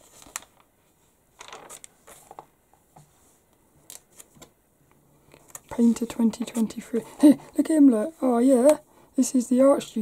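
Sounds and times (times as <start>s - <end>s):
magazine pages turning: 0.0s - 2.5s, 3.9s - 4.5s.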